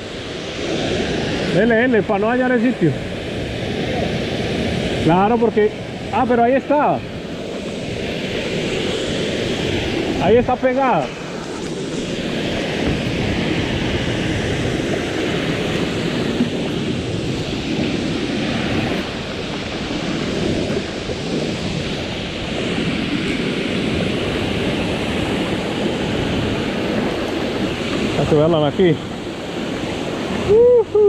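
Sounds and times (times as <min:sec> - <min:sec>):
waterfall: 0:00.0 - 0:31.0
stream rushing over rocks: 0:24.2 - 0:31.0.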